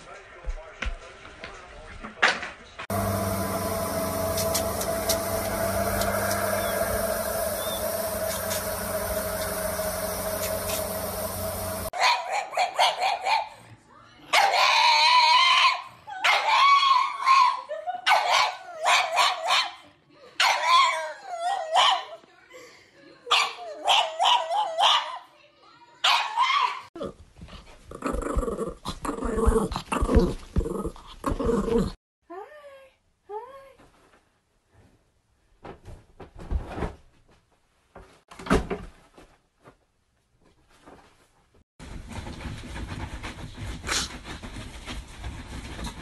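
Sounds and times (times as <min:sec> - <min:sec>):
dog yelping and howling: 0:14.4 - 0:19.8, 0:20.4 - 0:22.2, 0:23.4 - 0:25.2.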